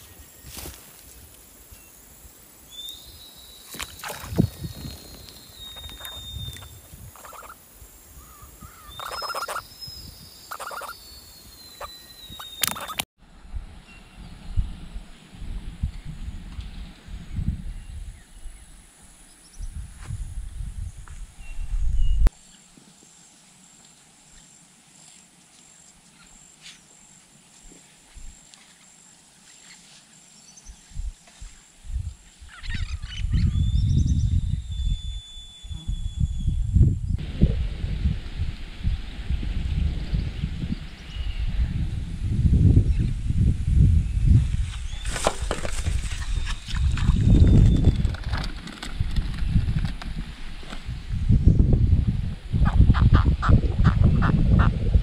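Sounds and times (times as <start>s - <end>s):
crackles and rustles: 0.0s - 1.8s, 44.4s - 51.0s
high pulsing insect call: 0.0s - 13.1s, 13.8s - 54.9s
low wind rumble on microphone: 3.1s - 12.6s, 13.2s - 22.3s, 30.6s - 55.0s.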